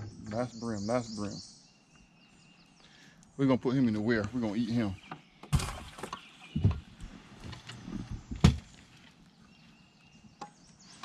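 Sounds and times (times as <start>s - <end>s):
knocks and thumps in boat: 5.4s - 8.7s.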